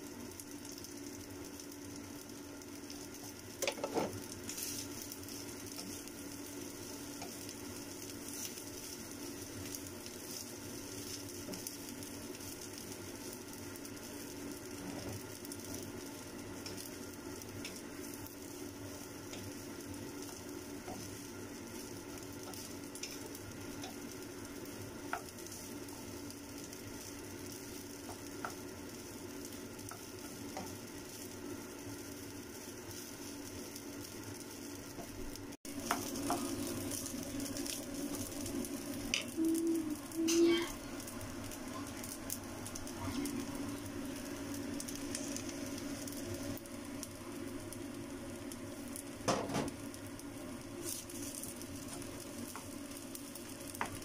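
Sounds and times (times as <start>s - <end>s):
rice sizzling in a pan: 0.0s - 54.0s
wooden spatula tapping and scraping: 3.6s - 4.2s.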